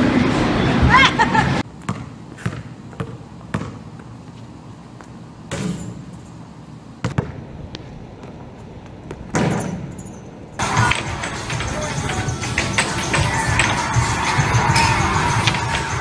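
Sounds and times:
basketball bouncing on concrete: 1.8s - 4.1s, 7.0s - 10.5s.

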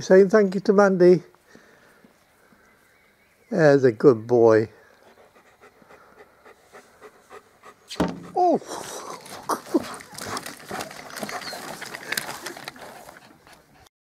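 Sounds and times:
dog panting: 5.0s - 13.9s.

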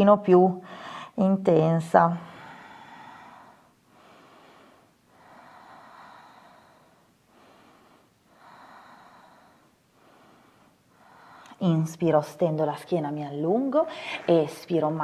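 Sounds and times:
woman breathing through nose: 0.6s - 1.2s, 2.2s - 11.6s.

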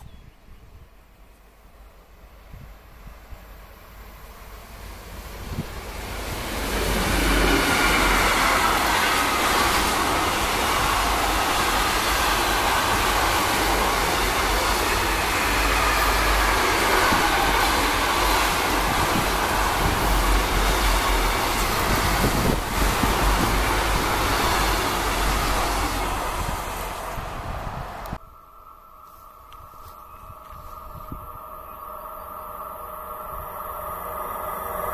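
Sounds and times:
train wheels rushing on rails: 2.2s - 28.2s.

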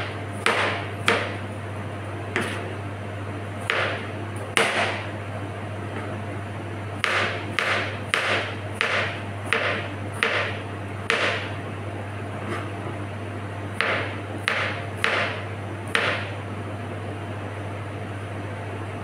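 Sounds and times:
knife chopping on cutting board: 0.0s - 1.4s, 2.3s - 2.7s, 3.6s - 5.1s, 7.0s - 11.5s, 13.8s - 16.3s.

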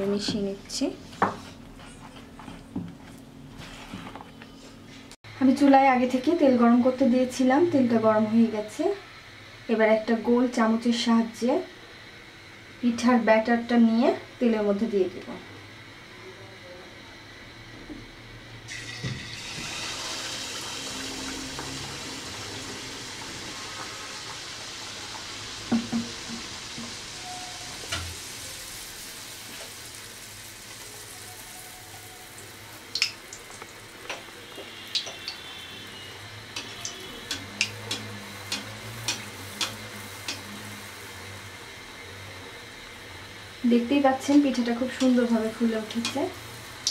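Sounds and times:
batter sizzling in hot oil: 18.7s - 46.9s.

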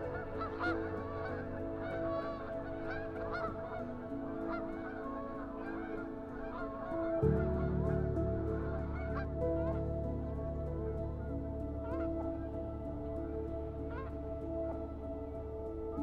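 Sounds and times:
soft background music: 0.0s - 16.0s
geese honking: 0.4s - 3.8s, 4.4s - 7.1s.

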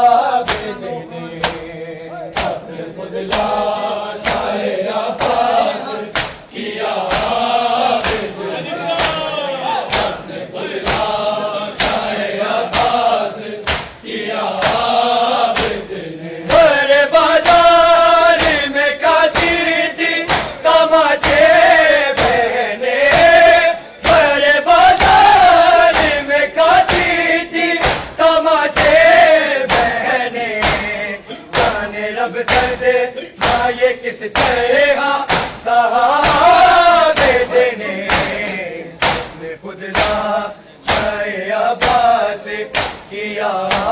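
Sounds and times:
men chanting in unison: 0.0s - 43.9s
hands slapping chests: 0.4s - 1.7s, 2.3s - 2.7s, 3.3s - 3.6s, 4.2s - 9.3s, 9.9s - 10.2s, 10.8s - 14.0s, 14.6s - 14.9s, 15.5s - 15.9s, 17.4s - 18.7s, 19.3s - 22.5s, 25.0s - 32.8s, 33.4s - 37.5s, 38.1s - 38.4s, 39.0s - 41.2s, 41.8s - 43.1s, 43.7s - 43.9s.

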